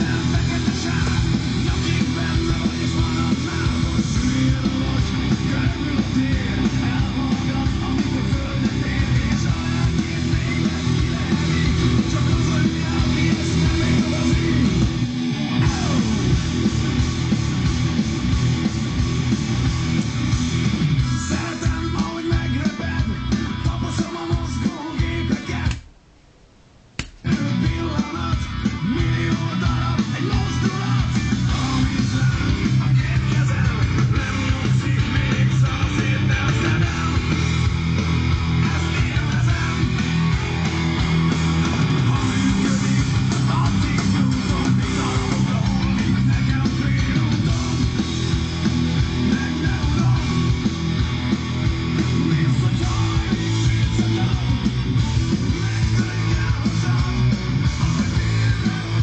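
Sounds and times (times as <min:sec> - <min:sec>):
rock music with electric guitar: 0:00.0 - 0:25.8, 0:27.2 - 0:59.0.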